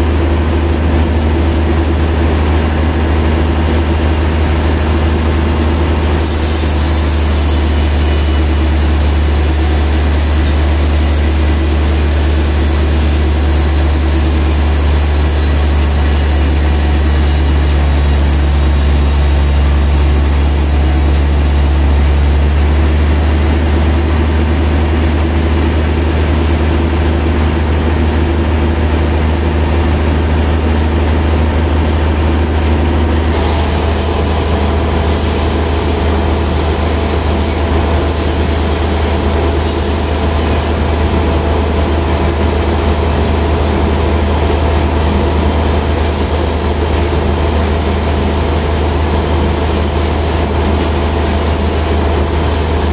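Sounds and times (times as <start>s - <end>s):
sawmill machine hum: 0.0s - 52.9s
band blade whirring: 6.2s - 22.5s, 33.3s - 40.8s.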